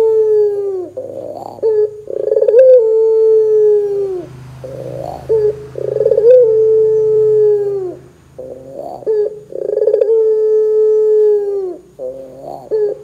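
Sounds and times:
dove cooing: 0.0 - 13.0.

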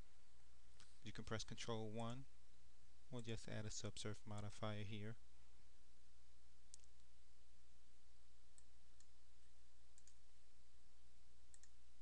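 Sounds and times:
low electrical hum: 0.0 - 12.0
computer mouse clicks: 6.7 - 7.1, 10.0 - 10.2, 11.5 - 11.8.

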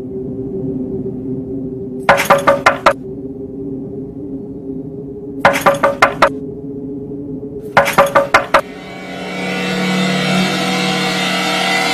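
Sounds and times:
dramatic background score: 0.0 - 11.9
low drone: 0.0 - 11.9
steady rising sound: 7.8 - 11.9.

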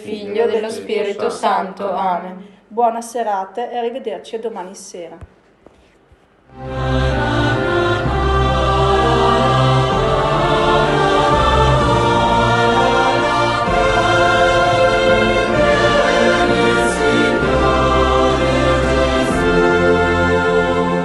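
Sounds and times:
choir singing held chords: 0.0 - 2.0, 6.5 - 21.0
low sustained bass notes: 6.6 - 21.0.

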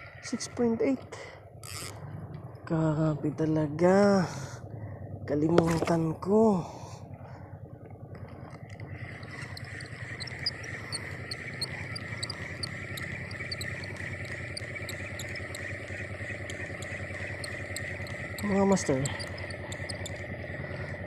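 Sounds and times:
insects chirping: 8.6 - 21.0.

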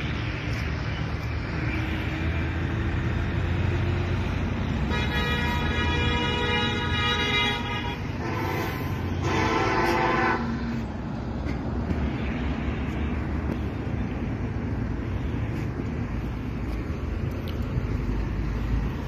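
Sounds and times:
road traffic rumble: 0.0 - 19.0
vehicle horn blasts: 4.8 - 10.6.

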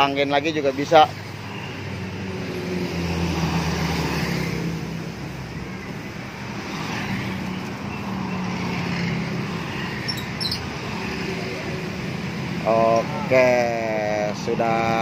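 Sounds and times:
traffic noise: 0.0 - 15.0.

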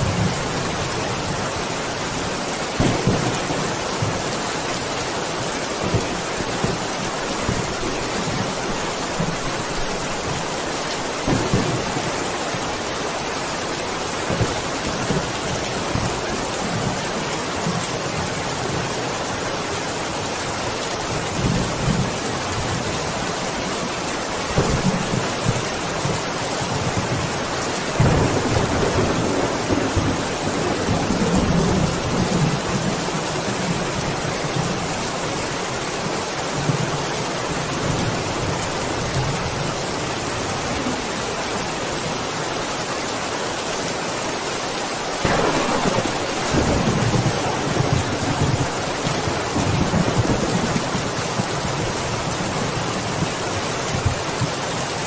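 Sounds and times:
thunder rumbling: 0.0 - 12.8, 24.5 - 34.8, 45.2 - 53.4
heavy rain: 0.0 - 55.0.

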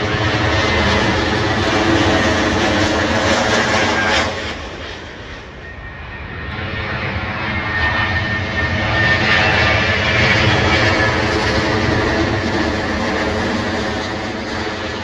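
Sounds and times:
jet airliner engines: 0.0 - 15.0.

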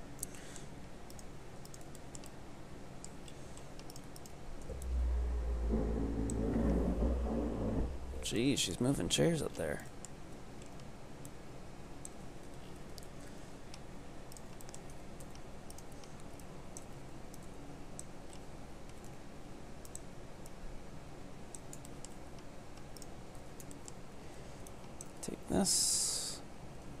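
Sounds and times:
steady low hum: 0.0 - 27.0
mouse and keyboard clicking: 1.1 - 2.4, 3.0 - 4.9, 10.0 - 11.4, 13.7 - 19.2, 19.8 - 20.6, 21.5 - 24.0.

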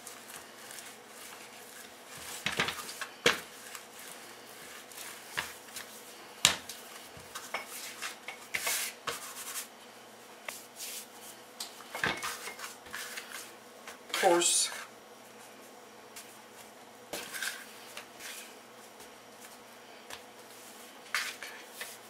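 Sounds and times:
rolling pin rubbing on dough: 0.0 - 9.7.

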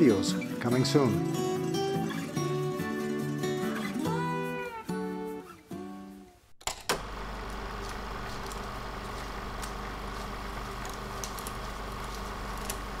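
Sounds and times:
guitar music: 0.0 - 6.4
film projector whirring: 6.8 - 13.0.

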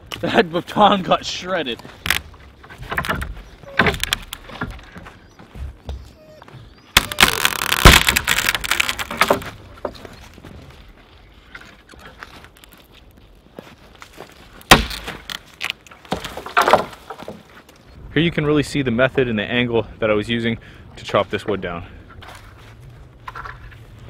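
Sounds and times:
tree trunk cracking and splintering: 1.5 - 5.7, 6.9 - 17.9
sharp wood snap: 1.8 - 6.0, 6.9 - 10.1, 14.6 - 17.5.

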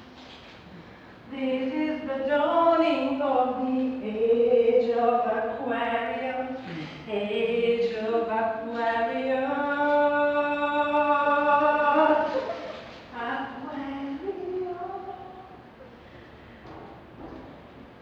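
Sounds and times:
singer breathing: 15.8 - 16.7.

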